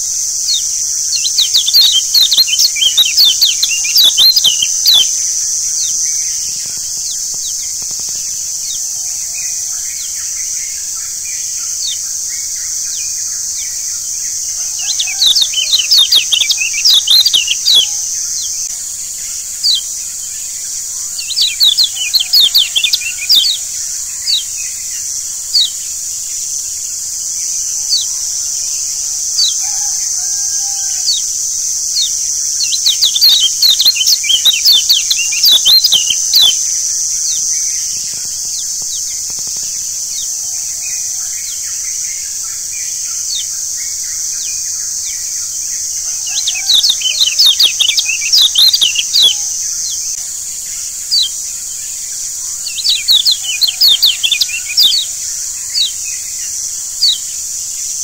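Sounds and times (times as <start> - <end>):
birds chirping high notes: 0.0 - 18.7, 19.6 - 26.8, 27.6 - 39.4, 45.7 - 50.2, 52.6 - 56.3
steady high hiss: 0.0 - 58.0.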